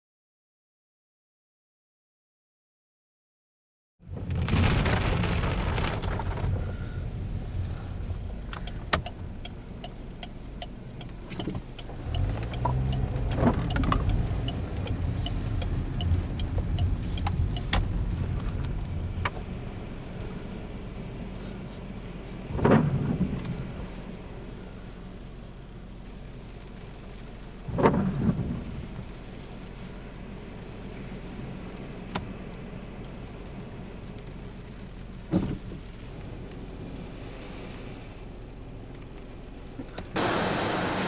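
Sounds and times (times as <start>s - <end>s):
car engine rumble: 4.0s - 41.0s
wind and rain rushing: 4.0s - 41.0s
raindrops ticking on windshield: 4.1s - 40.3s.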